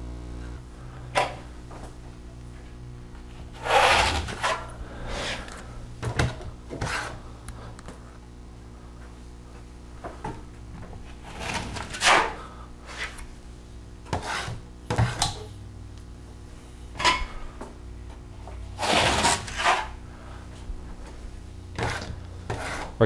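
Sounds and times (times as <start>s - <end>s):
drywall knife scraping wall: 3.6s - 5.5s, 6.2s - 7.3s, 11.2s - 13.2s, 14.1s - 15.4s, 18.7s - 20.0s, 21.7s - 23.0s.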